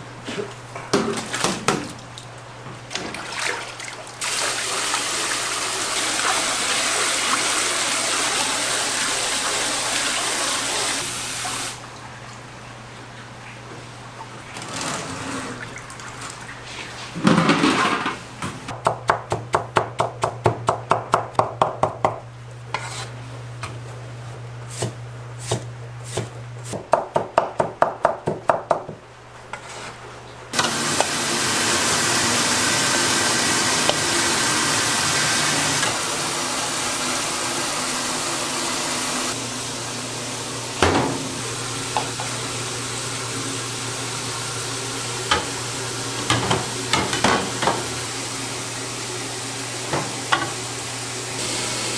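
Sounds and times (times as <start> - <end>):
cleaver chopping on cutting board: 24.8 - 29.0.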